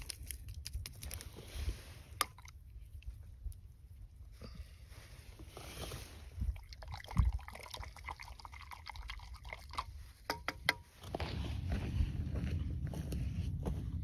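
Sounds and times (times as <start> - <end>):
liquid pouring and sloshing: 5.7 - 10.2.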